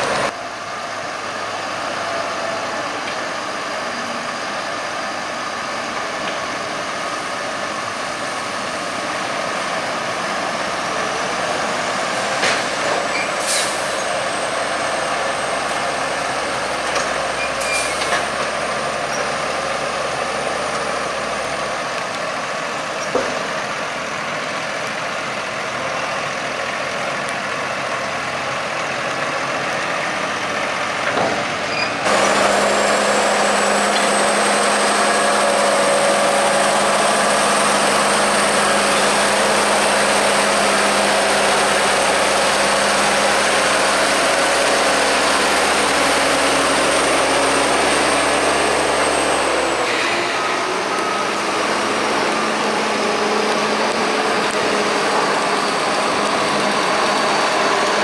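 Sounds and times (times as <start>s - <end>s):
tractors working: 0.0s - 58.0s
tractor engine idling: 32.0s - 49.9s.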